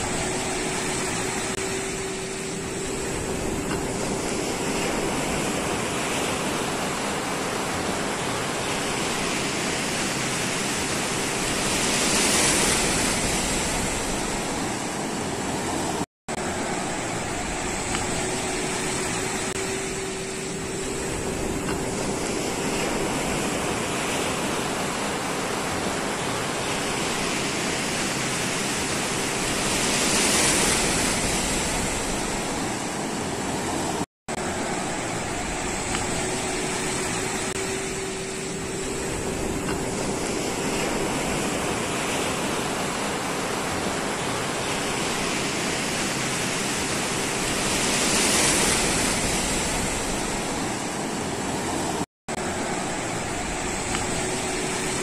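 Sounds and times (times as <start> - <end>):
ocean surf washing on beach: 0.0 - 55.0.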